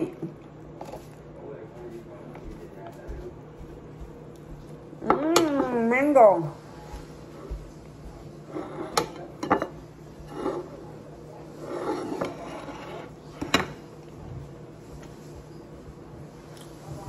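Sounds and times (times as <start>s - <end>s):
dishes clinking on wooden table: 8.6s - 9.8s, 11.9s - 13.8s.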